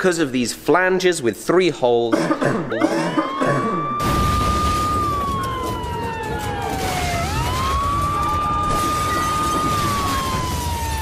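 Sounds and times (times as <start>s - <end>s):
siren wailing: 2.7s - 11.0s.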